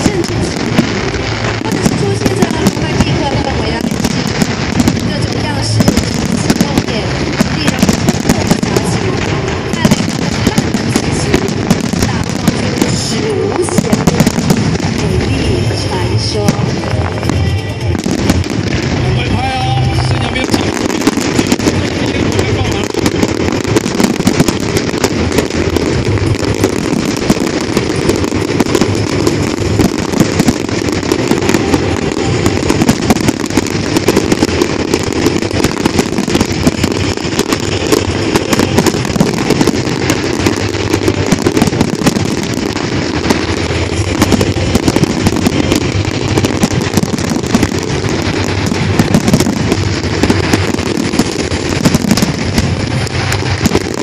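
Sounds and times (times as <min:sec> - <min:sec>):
firework shells bursting: 0:00.0 - 0:54.0.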